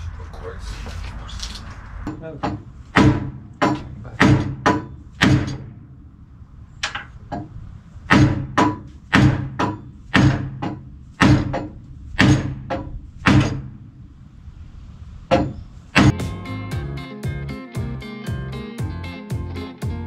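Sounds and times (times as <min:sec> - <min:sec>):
hammer striking metal: 0:02.1 - 0:05.8, 0:08.1 - 0:13.8, 0:15.3 - 0:16.4.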